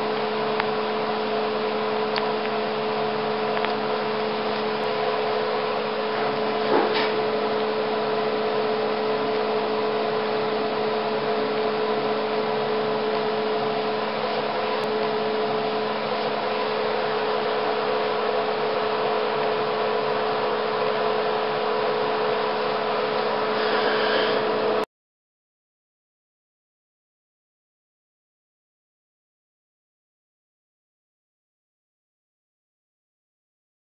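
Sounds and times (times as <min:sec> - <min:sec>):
mixer motor humming: 0:00.0 - 0:24.9.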